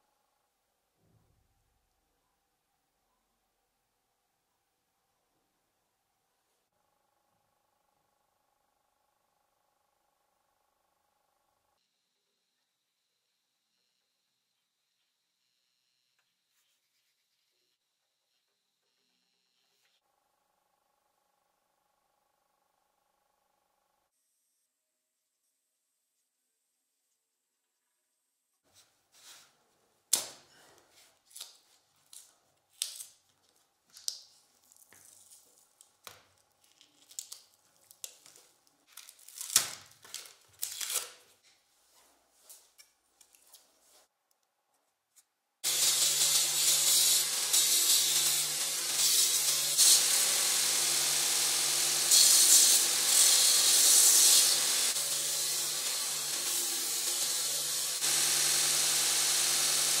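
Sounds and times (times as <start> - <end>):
belt sander running: 45.6 - 60.0.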